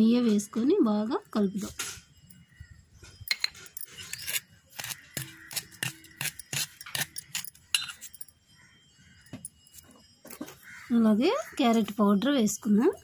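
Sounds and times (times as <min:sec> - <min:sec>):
spoon clinking on steel plate: 0:06.2 - 0:08.3.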